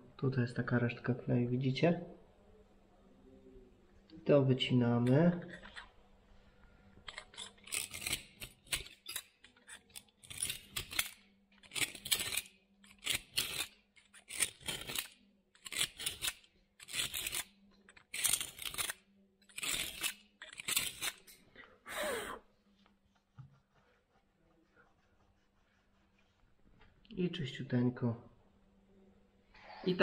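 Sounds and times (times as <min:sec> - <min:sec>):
knife blade scraping tile joint: 0:07.1 - 0:21.4.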